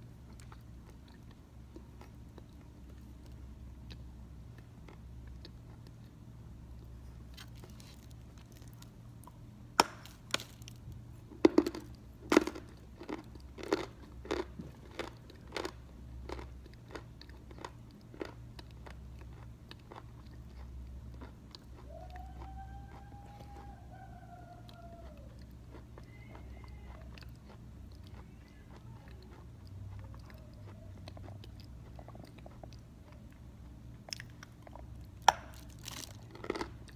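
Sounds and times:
chalk crunched and chewed: 0.3s - 10.9s, 24.6s - 36.9s.

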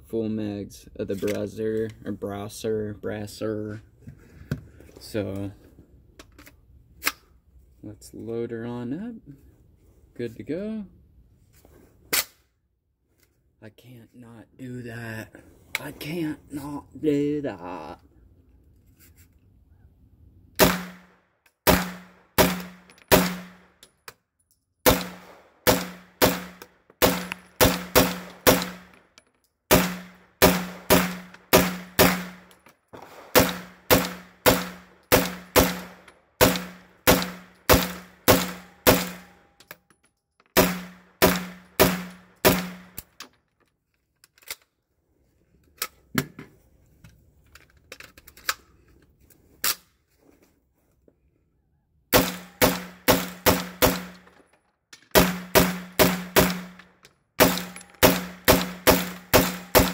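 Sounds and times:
pistol shots ringing: 20.6s - 21.1s, 24.9s - 28.9s, 29.7s - 39.3s, 57.4s - 59.9s.

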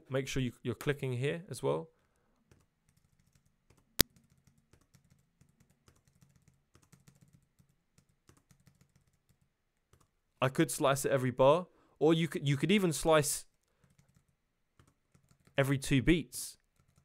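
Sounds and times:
keyboard keys tapping: 2.5s - 10.1s.

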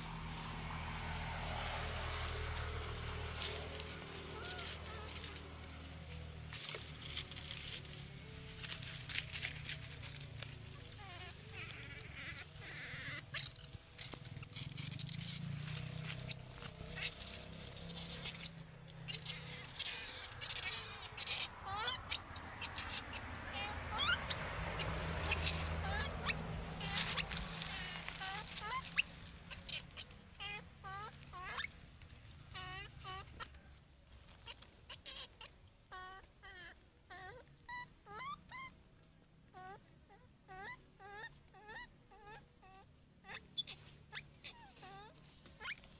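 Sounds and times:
bamboo stems rustling and snapping: 0.4s - 11.0s, 26.6s - 29.0s
high-pitched squeaky animal calls: 4.3s - 5.5s, 9.6s - 38.8s, 39.5s - 45.9s.

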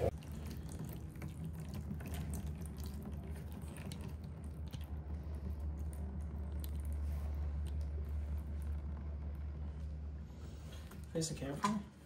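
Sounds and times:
steady low hum: 0.0s - 12.0s
oil dripping into pool: 0.1s - 9.4s.

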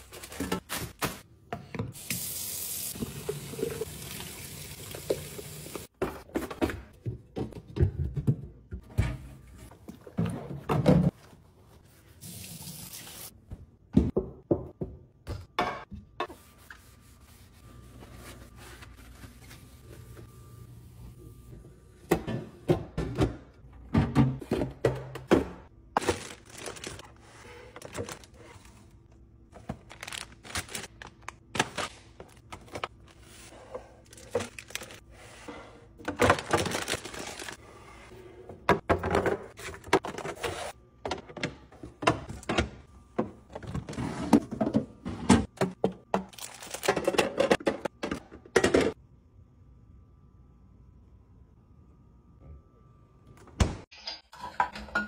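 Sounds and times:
plastic packaging crinkling: 26.0s - 27.1s, 29.7s - 32.4s, 36.3s - 37.6s, 46.3s - 46.9s
containers clacking into plastic bins: 36.0s - 37.6s, 38.7s - 49.0s.

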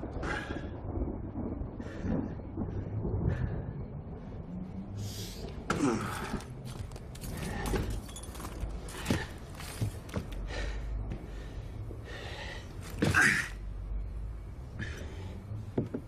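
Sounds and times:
man breathing heavily: 8.8s - 13.0s, 14.6s - 15.8s.

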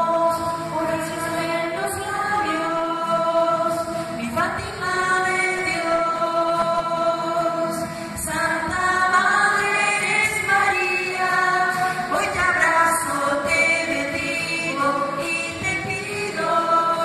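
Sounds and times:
choir singing slow melody: 4.9s - 17.0s.

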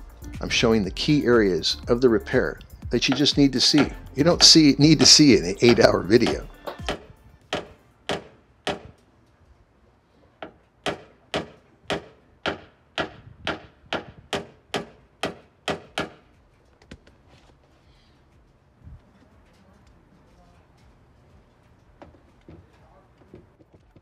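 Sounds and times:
tool tapping on car fender: 3.0s - 9.0s, 10.4s - 16.2s.

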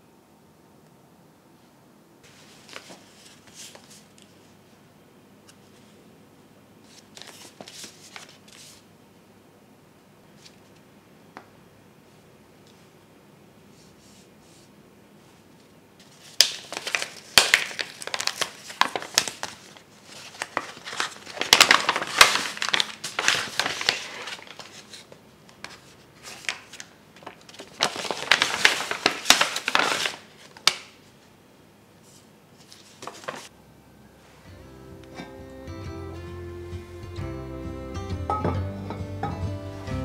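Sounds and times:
paper and plastic packet crinkling: 2.3s - 4.4s, 6.9s - 8.8s, 16.0s - 31.0s, 32.6s - 33.5s.

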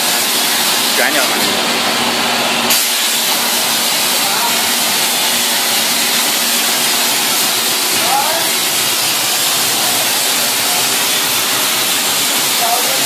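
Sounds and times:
plasma torch hissing: 2.7s - 13.0s.

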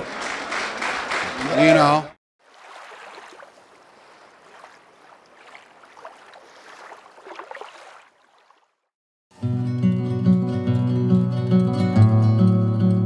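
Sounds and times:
small waves lapping: 2.4s - 9.0s
acoustic guitar music: 9.4s - 13.0s.

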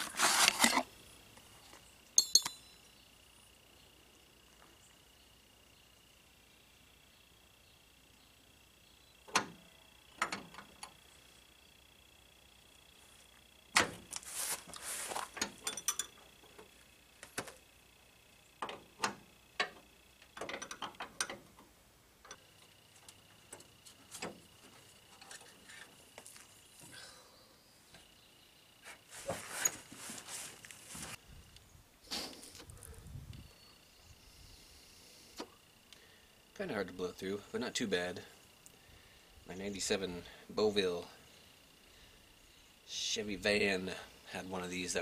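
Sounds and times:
wrenches clinking on metal: 2.2s - 2.7s, 15.4s - 16.2s.

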